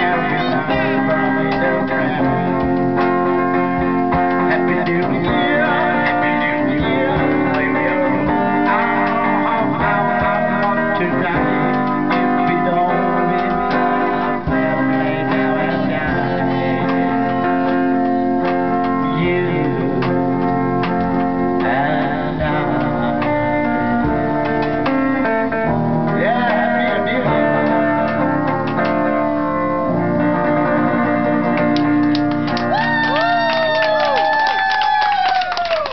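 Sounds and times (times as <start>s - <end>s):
men singing: 0.0s - 3.1s, 4.1s - 20.5s, 21.6s - 24.0s, 26.1s - 28.3s
guitar playing: 0.0s - 35.9s.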